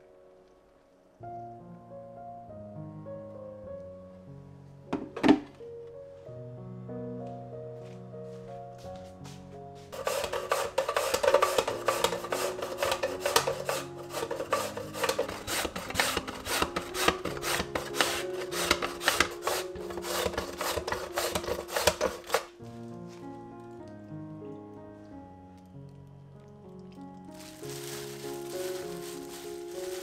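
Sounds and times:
carrot rasping on slicer: 10.0s - 22.5s.

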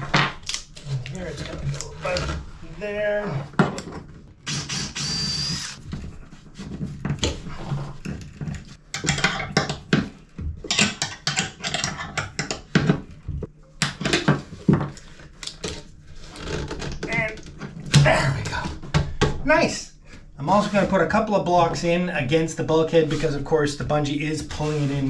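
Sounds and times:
cordless drill whining: 4.5s - 5.8s.

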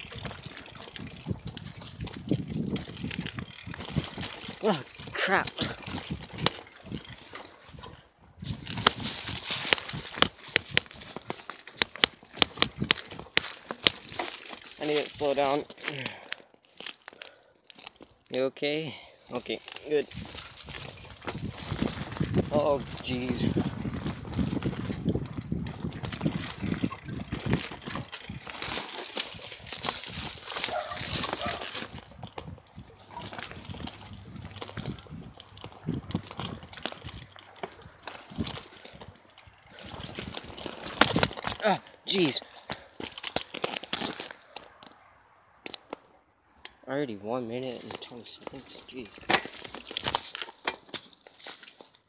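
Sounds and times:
bicycle rattling knocks: 0.0s - 15.6s, 20.2s - 41.8s, 47.8s - 51.2s
bicycle tyre noise on dirt: 0.0s - 52.0s.

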